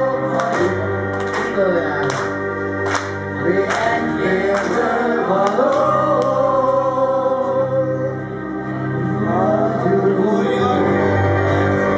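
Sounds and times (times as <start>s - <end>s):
instrumental accompaniment: 0.0s - 11.9s
man singing into a microphone: 9.0s - 11.9s.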